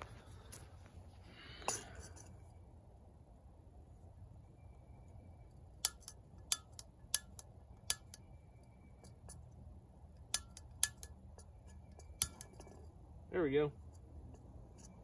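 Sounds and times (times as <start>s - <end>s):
stove igniter clicking: 5.8s - 8.2s, 10.2s - 11.2s, 12.0s - 12.6s.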